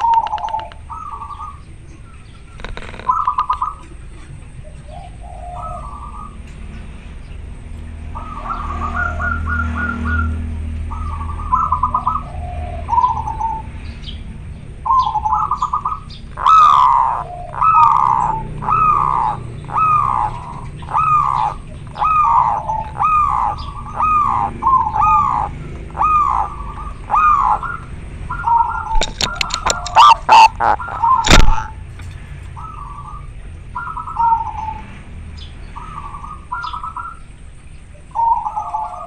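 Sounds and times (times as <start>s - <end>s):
sharp clicks: 0.0s - 0.9s, 28.9s - 32.2s
dove cooing and trilling: 0.0s - 6.6s, 8.0s - 14.2s, 14.8s - 35.0s, 35.8s - 39.0s
short falling bird notes: 28.9s - 31.9s.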